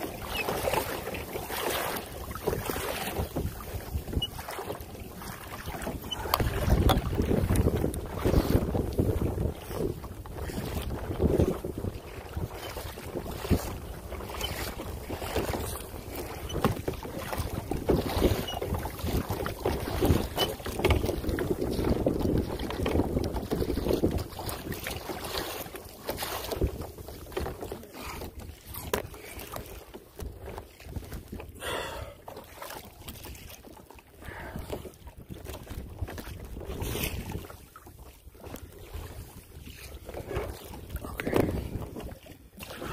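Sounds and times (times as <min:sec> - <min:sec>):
water splashing and lapping: 0:00.0 - 0:42.9
wind buffeting microphone: 0:02.2 - 0:25.6, 0:34.2 - 0:37.7, 0:38.4 - 0:42.9.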